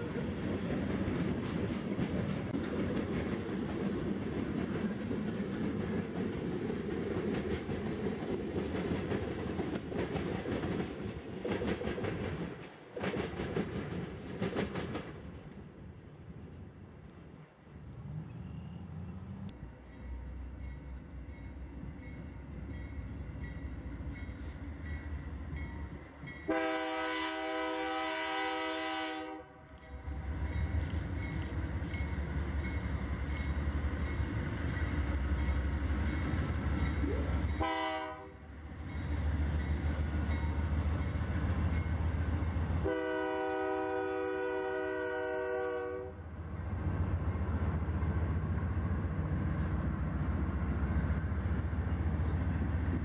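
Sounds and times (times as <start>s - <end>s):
diesel locomotive rumbling: 0.0s - 53.0s
train chime horn: 26.4s - 30.1s, 37.5s - 39.1s, 42.8s - 46.2s.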